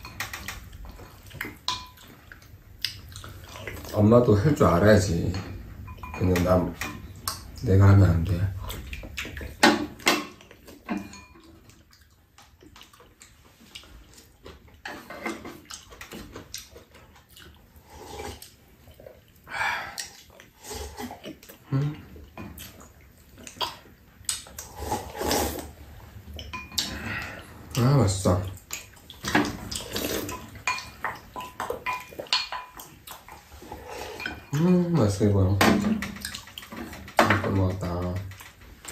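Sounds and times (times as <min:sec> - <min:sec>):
slurping soup: 0:17.6 - 0:19.2, 0:19.9 - 0:23.8, 0:24.4 - 0:26.2, 0:28.9 - 0:31.5, 0:33.1 - 0:34.5.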